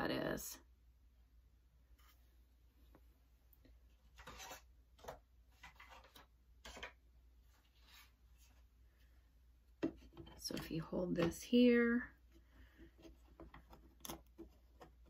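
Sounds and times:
faint rubbing and scraping: 4.0 - 9.2.

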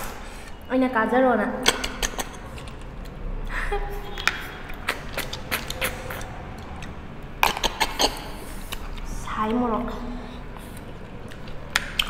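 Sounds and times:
wet slurping: 4.1 - 9.2.

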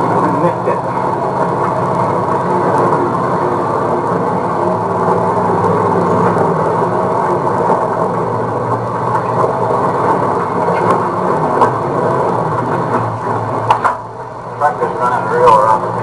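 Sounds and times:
loud road rumble: 0.0 - 16.0
truck engine drone: 0.0 - 16.0.

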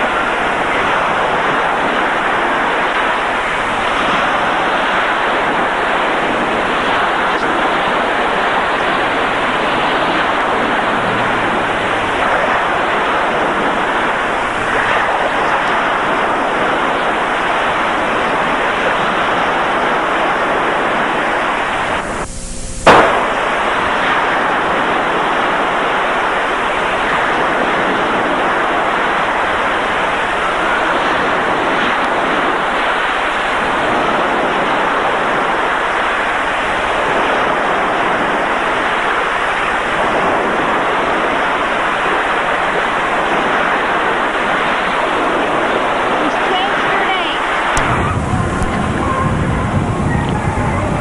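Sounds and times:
wind and surf rushing: 0.0 - 51.0
sharp loud click: 22.2 - 23.4.

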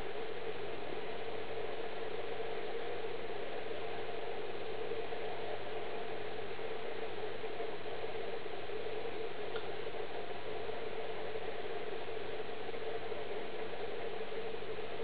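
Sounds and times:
faint tick: 9.5 - 9.7.

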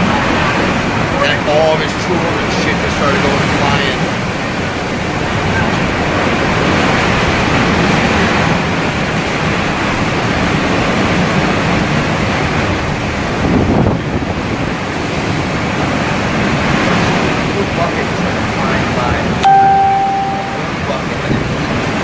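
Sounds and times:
strong wind: 0.0 - 20.0
driving rain: 0.0 - 22.0.

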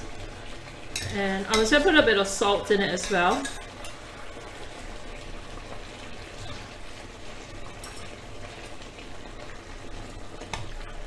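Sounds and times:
pot simmering and bubbling: 0.0 - 11.0
metal spoon stirring: 3.0 - 4.0.

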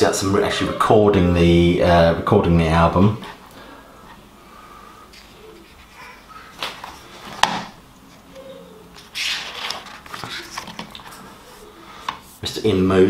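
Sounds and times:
book pages turning: 5.1 - 8.3, 8.9 - 12.4.

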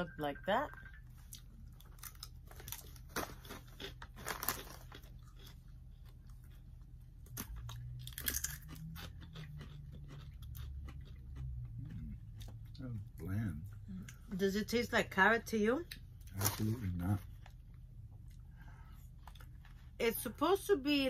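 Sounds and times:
people crunching dried chips: 1.4 - 6.6, 7.2 - 12.6.

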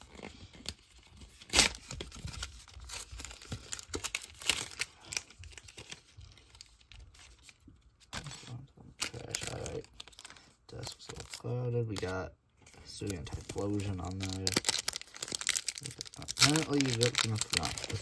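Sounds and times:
foil wrapper crinkling: 9.0 - 12.2, 12.9 - 18.0
foil wrapper ripping: 9.1 - 11.5, 13.5 - 18.0.

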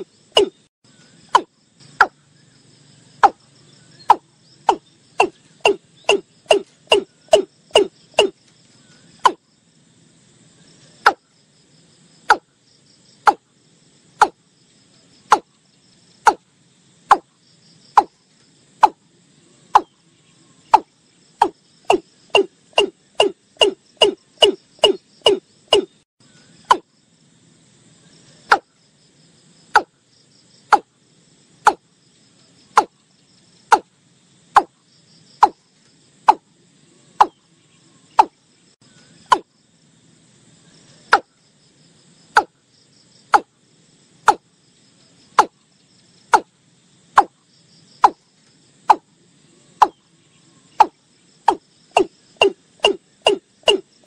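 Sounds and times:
bird calling hollow falling notes: 0.0 - 0.7, 3.2 - 8.4, 20.7 - 26.0, 38.2 - 38.4, 50.8 - 53.9
faint insects chirring: 0.0 - 54.0.

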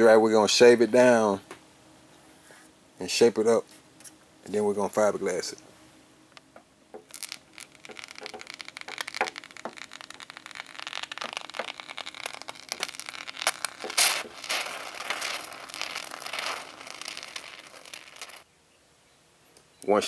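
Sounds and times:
spray foam sputtering from can: 7.0 - 18.4.

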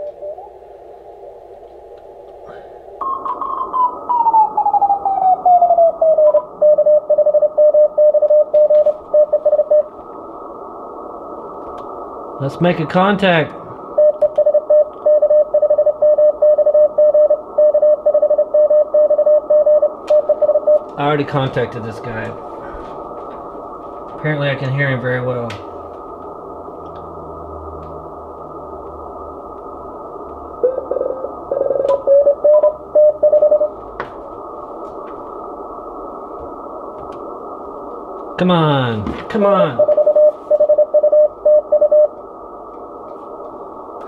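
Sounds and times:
radio band hiss: 8.8 - 14.0, 20.8 - 26.7, 28.0 - 44.0
morse code tone: 14.0 - 20.8, 30.6 - 33.7, 39.8 - 42.1.

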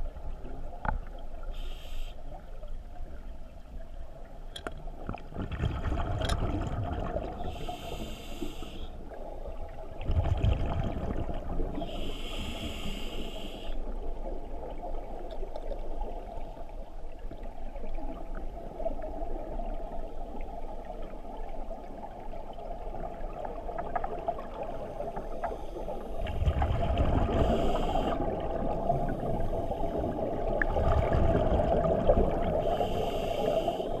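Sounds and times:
underwater hum: 0.0 - 34.0
regulator hissing inhalations: 1.6 - 2.2, 7.5 - 9.0, 11.8 - 13.8, 27.4 - 28.2, 32.6 - 34.0
exhaled air bubbling: 5.0 - 13.4, 22.4 - 34.0.

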